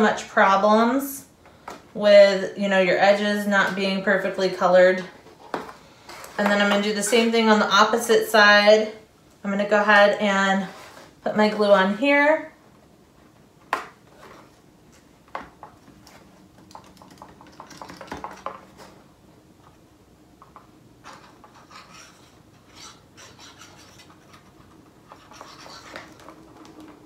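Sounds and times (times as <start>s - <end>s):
glue bottle tip scraping card: 21.1s - 24.5s, 25.1s - 26.2s.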